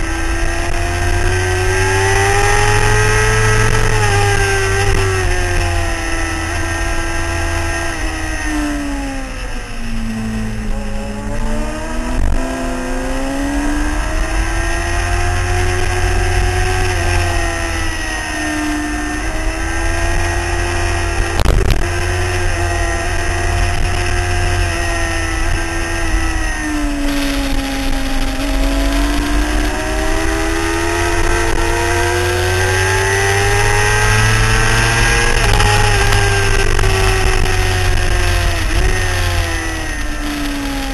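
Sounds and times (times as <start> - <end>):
motorcycle engine revving: 0.0 - 40.9
wind rumbling on microphone: 0.0 - 40.9.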